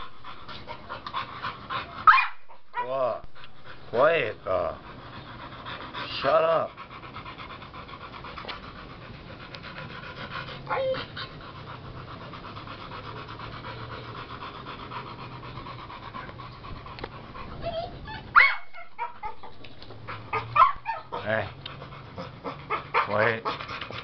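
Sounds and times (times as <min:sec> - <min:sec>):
dog panting: 0:00.0 - 0:24.0
dog whining: 0:10.5 - 0:11.5, 0:17.3 - 0:23.5.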